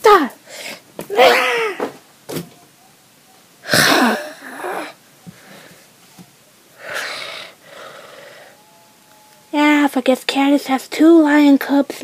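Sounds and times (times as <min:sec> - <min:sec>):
person making raspy breathy noises: 0:03.6 - 0:05.7, 0:06.8 - 0:08.6.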